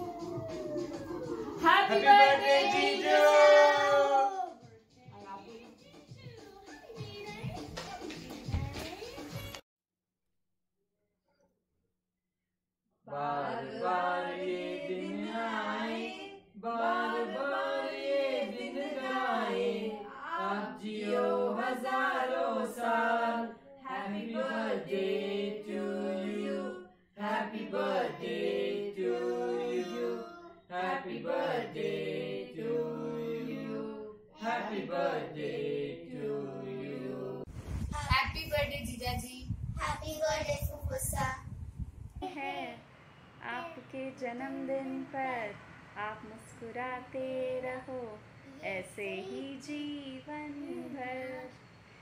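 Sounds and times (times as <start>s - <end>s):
voices singing a chant: 0.0s - 4.6s, 13.1s - 37.5s.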